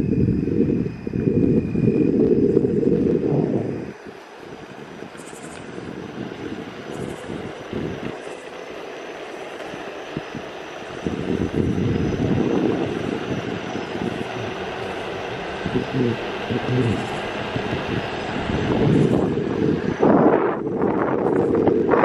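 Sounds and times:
rushing wind noise: 0.0s - 22.0s
skateboard wheels rumbling on asphalt: 0.7s - 22.0s.

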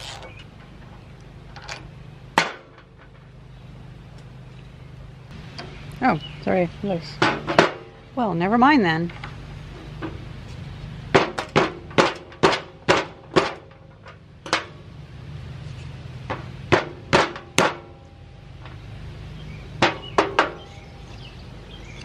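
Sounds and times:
sharp metal knocks: 1.6s - 3.3s, 7.1s - 8.0s, 11.1s - 14.9s, 16.3s - 18.8s, 19.8s - 20.8s.

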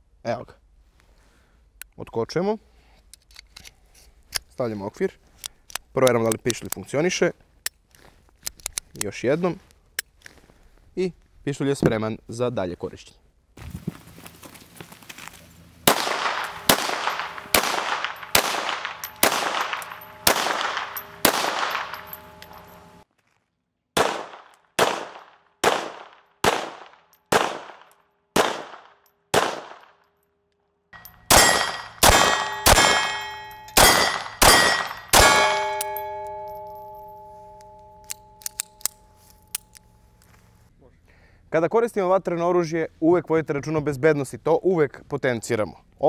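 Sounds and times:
pistol shots: 15.9s - 22.4s, 24.0s - 30.0s, 31.0s - 36.6s
ringing tone: 31.0s - 40.0s.

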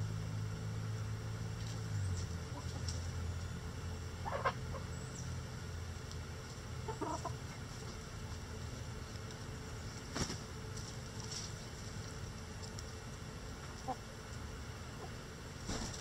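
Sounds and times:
hens clucking: 2.4s - 3.0s, 4.2s - 5.0s, 6.8s - 8.1s, 13.6s - 16.0s.

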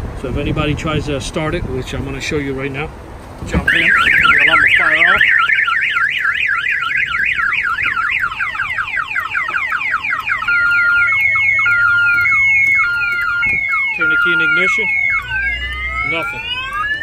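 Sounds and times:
car alarm siren: 3.6s - 17.0s.

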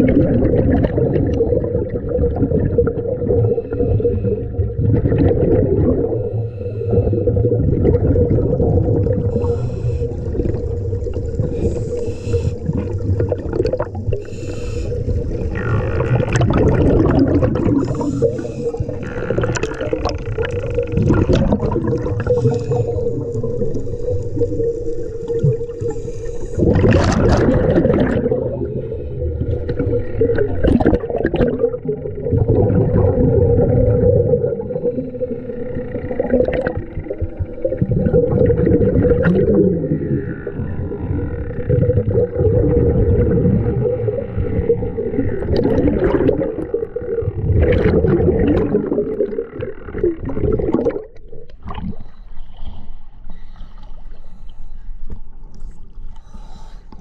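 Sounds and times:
exhaust bubbles bubbling: 0.0s - 52.1s
regulator hissing inhalations: 6.3s - 7.2s, 9.3s - 10.6s, 11.4s - 13.0s, 14.1s - 15.5s, 17.8s - 19.1s, 22.2s - 26.7s.

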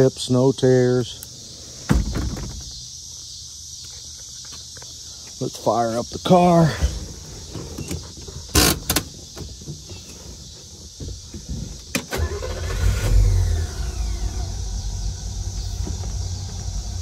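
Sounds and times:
car engine starting and idling: 11.8s - 17.0s.

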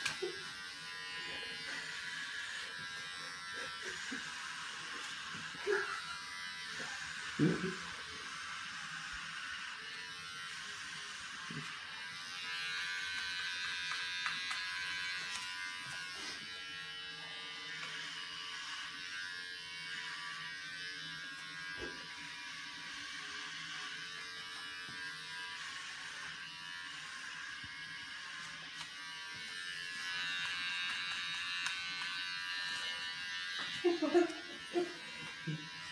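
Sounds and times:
electric hair clippers buzzing: 0.0s - 35.9s.

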